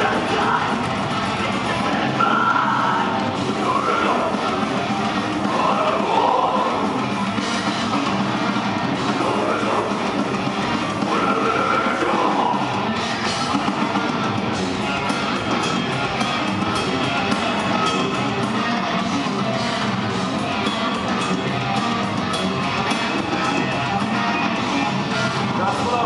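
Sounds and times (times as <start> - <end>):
heavy metal band playing live: 0.0 - 26.0.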